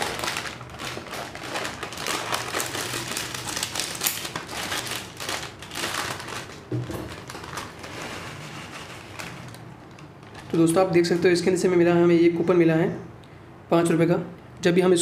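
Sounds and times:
snack packet crinkling: 0.0s - 11.2s.

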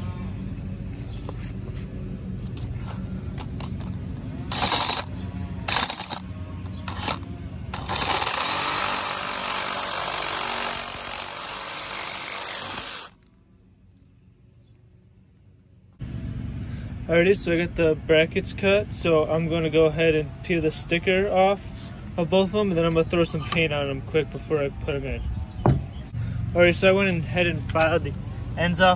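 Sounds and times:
low steady hum: 0.0s - 28.7s
reciprocating saw cutting metal: 4.5s - 5.1s, 5.7s - 6.3s, 6.9s - 13.3s.

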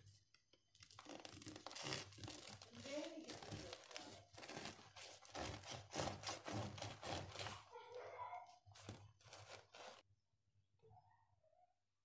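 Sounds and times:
bread knife sawing through crust: 3.9s - 7.8s, 9.2s - 10.0s.

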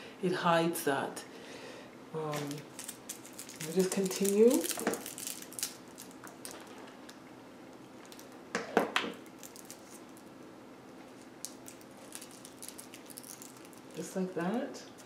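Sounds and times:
foil crinkle: 2.3s - 6.9s, 9.2s - 10.3s, 11.2s - 14.5s
foil candy wrappers rustling: 2.3s - 7.2s, 8.0s - 8.4s, 9.2s - 10.3s, 11.1s - 14.6s.

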